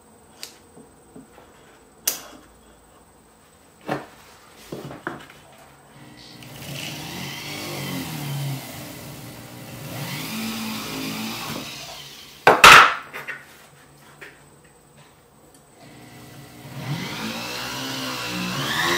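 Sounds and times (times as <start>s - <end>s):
rotary tool motor humming: 6.0s - 12.4s, 15.8s - 18.9s.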